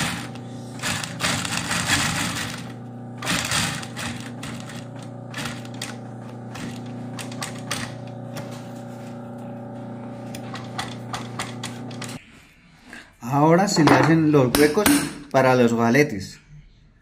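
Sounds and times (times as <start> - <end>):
sewing machine motor hum: 0.0 - 12.2.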